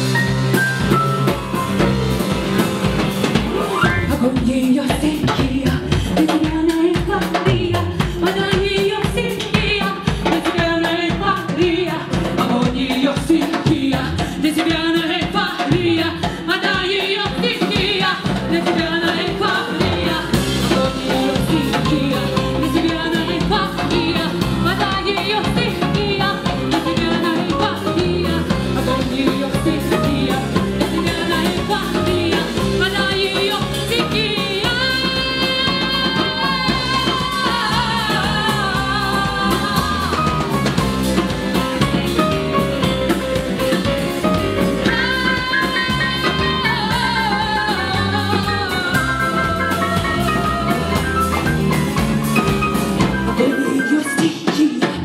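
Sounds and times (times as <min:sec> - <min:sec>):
electric guitar: 0:00.0 - 0:04.6
bass guitar: 0:00.0 - 0:13.0, 0:17.8 - 0:54.0
drum kit: 0:00.0 - 0:55.0
woman singing: 0:03.8 - 0:55.0
keyboard: 0:19.4 - 0:55.0.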